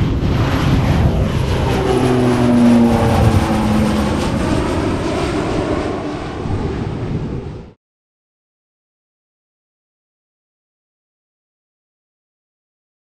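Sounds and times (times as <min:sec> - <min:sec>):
turboprop plane flying past: 0:00.0 - 0:07.8.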